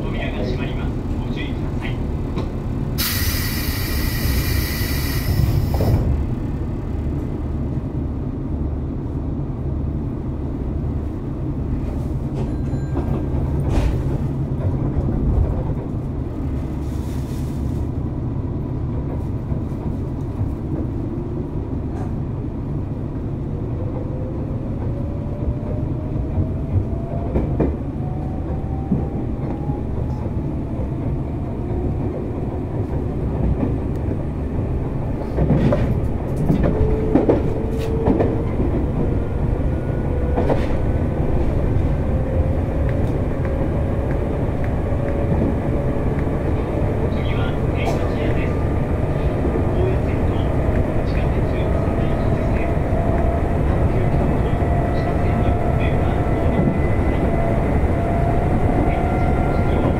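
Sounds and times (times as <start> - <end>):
train wheels rumbling on rail: 0.0 - 59.9
knocks of train wheels: 35.2 - 39.1.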